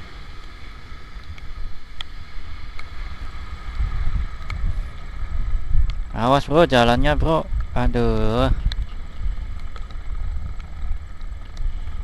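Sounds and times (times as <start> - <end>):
motorcycle engine running: 0.0 - 12.0
wind rumble on microphone: 0.0 - 12.0
sharp ticks: 8.6 - 11.7.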